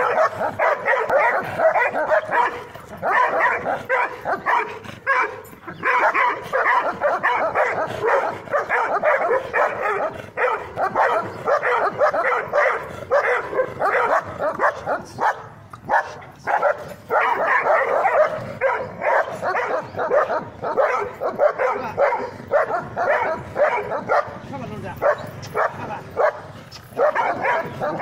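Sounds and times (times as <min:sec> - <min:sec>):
dogs barking rapidly: 0:00.0 - 0:28.0.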